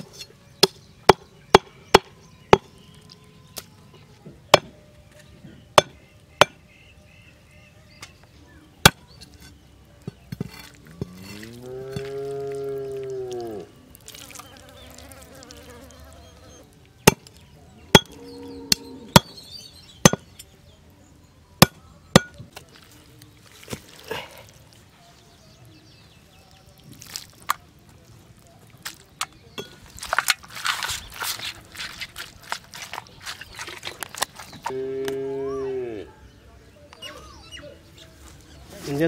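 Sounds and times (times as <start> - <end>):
scraping and handling meat: 22.5 - 34.7.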